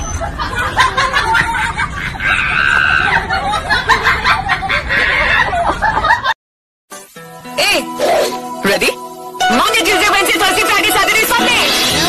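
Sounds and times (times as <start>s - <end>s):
people laughing and giggling: 0.2s - 6.4s.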